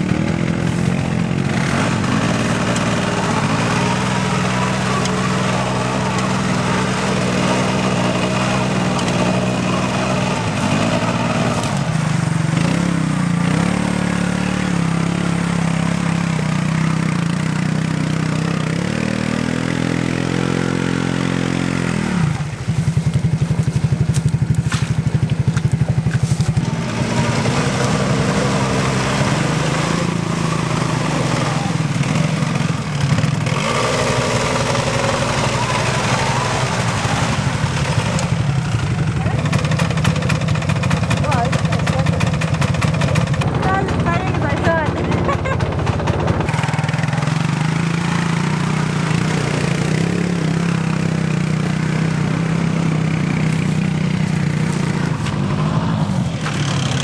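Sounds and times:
atv engines revving in mud: 0.0 - 57.0.

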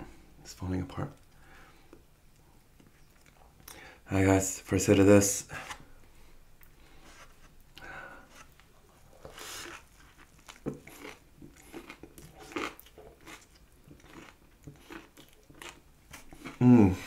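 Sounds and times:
person chewing crunchy food: 8.3 - 17.0.

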